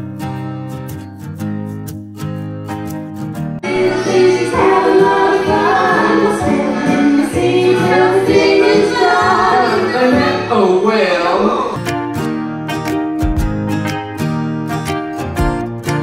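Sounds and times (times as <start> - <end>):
guitar music: 0.0 - 16.0
women and children singing: 3.6 - 11.1.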